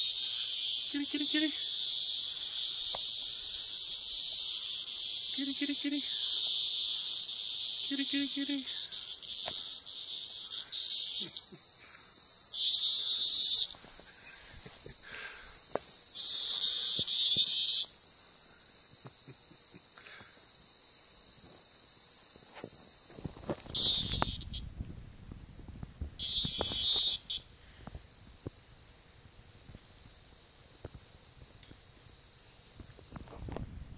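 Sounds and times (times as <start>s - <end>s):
cicada buzzing in short bursts: 0.0s - 24.9s, 26.0s - 33.8s
high insect trill: 0.0s - 33.9s.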